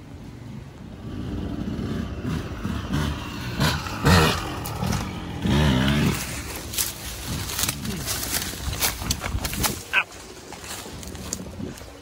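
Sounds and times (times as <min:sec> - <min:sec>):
motorcycle engine revving: 0:00.9 - 0:09.6.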